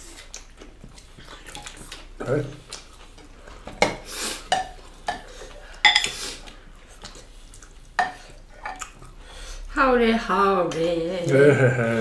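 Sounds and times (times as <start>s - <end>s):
cutlery clinking on plates: 3.7s - 6.2s.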